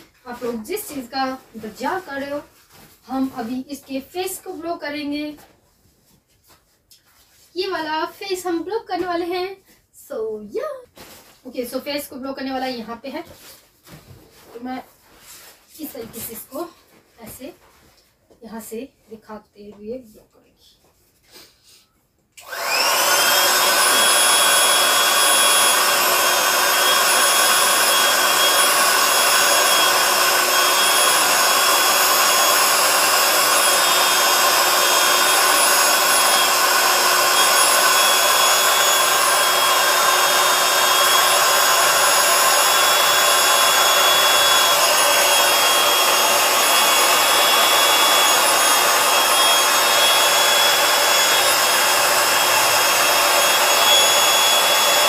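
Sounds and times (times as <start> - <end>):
electric air pump whining: 22.4 - 55.0.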